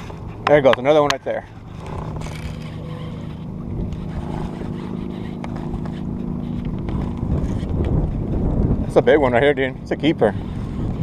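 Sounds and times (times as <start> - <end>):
wind rumble on microphone: 0.0 - 11.0
fishing reel whirring: 1.5 - 8.4.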